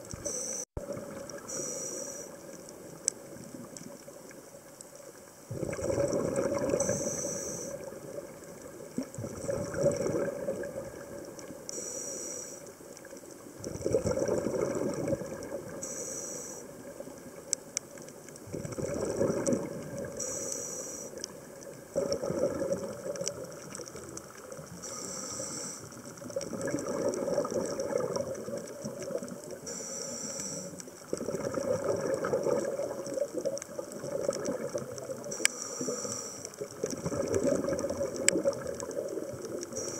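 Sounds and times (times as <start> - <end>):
exhaled bubbles rushing: 0.8 - 1.5, 5.5 - 7.1, 7.8 - 11.6, 13.6 - 15.8, 18.4 - 20.2, 21.7 - 24.7, 26.2 - 29.6, 31.0 - 35.3, 36.6 - 39.8
regulator hissing inhalations: 1.5 - 2.4, 6.8 - 7.8, 11.7 - 12.7, 15.8 - 16.7, 20.2 - 21.2, 24.8 - 25.9, 29.7 - 30.8, 35.4 - 36.6.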